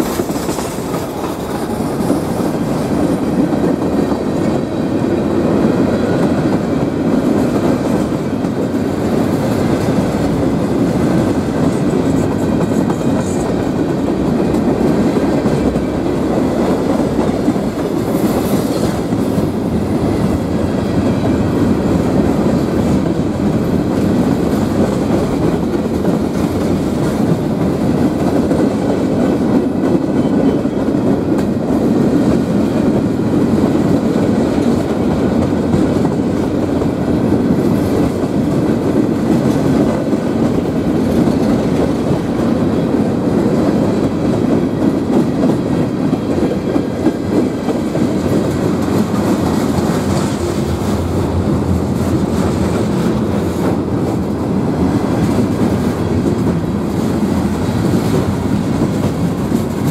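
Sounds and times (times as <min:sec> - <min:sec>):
freight train cars rolling past: 0:00.0 - 0:59.9.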